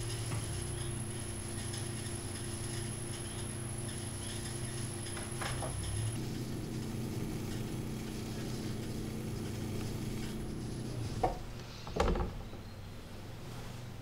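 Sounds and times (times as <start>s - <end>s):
pottery wheel motor hum: 0.0s - 14.0s.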